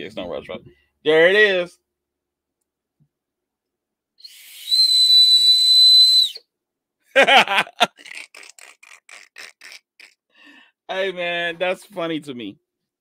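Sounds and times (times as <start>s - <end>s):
high whistle blown: 4.2s - 6.5s
man laughing: 7.1s - 10.2s.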